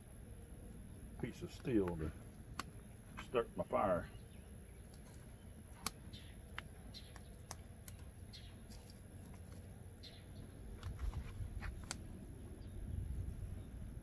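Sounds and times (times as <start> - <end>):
wood fire popping and crackling: 0.0 - 3.6, 4.7 - 12.4
low fire rumble: 0.0 - 14.0.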